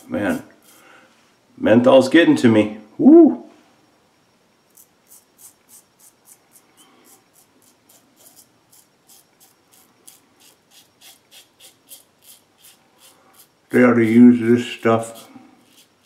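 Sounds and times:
razor scraping stubble: 0.0 - 0.8, 4.7 - 16.0.

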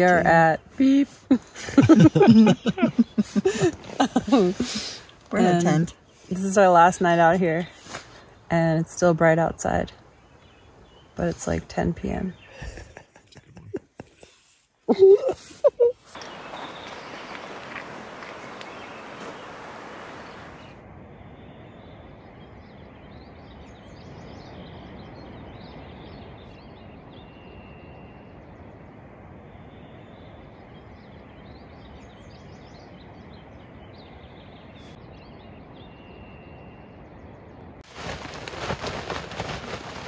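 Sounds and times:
steady low hiss: 0.0 - 40.0
bird chirps: 15.7 - 28.6
tent rustling and flapping: 37.8 - 40.0.

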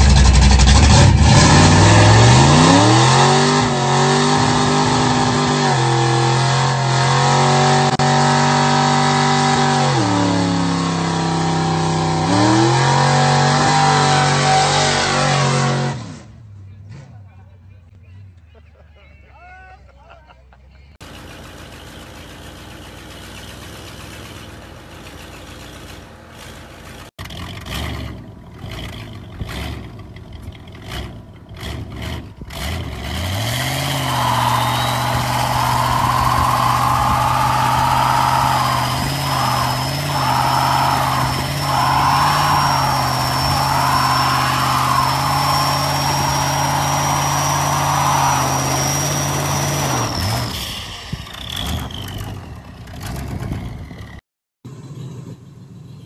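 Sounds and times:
pickup engine revving: 0.0 - 17.2, 21.0 - 54.0
pickup engine idling: 21.0 - 27.6
tyres squealing: 33.9 - 50.6.

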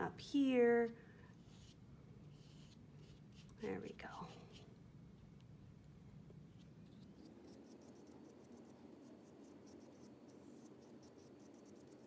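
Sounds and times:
paintbrush scratching on paper: 1.3 - 4.7, 6.6 - 12.0.

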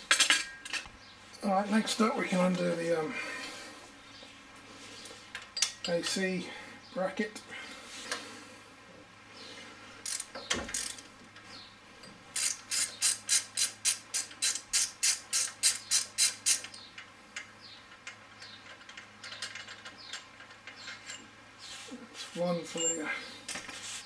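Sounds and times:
ratchet wrench clicking: 10.0 - 11.0, 12.4 - 16.8.

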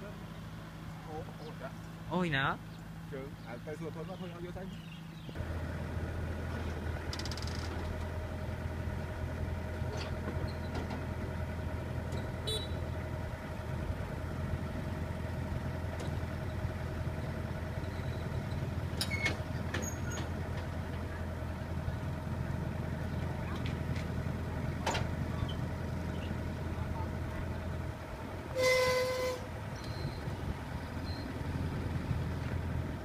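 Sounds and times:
vehicle engine idling: 0.0 - 33.0.

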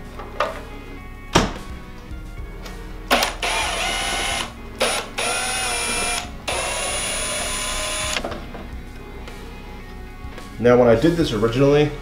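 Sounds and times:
cordless drill motor whine: 3.2 - 8.2.

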